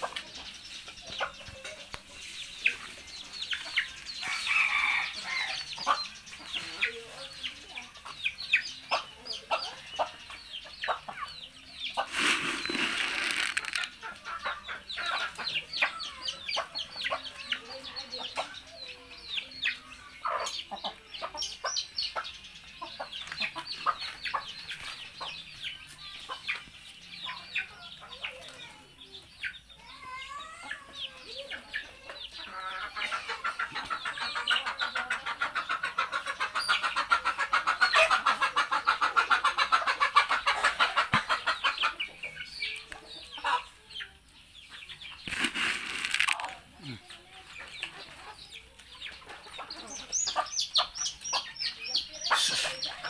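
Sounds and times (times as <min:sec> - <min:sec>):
chickens clucking: 0:00.0 - 0:53.0
rustling: 0:12.0 - 0:13.9, 0:45.2 - 0:46.6.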